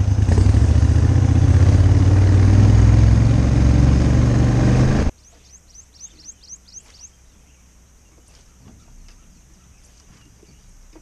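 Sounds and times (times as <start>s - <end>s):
small bird chirping: 5.1s - 10.8s.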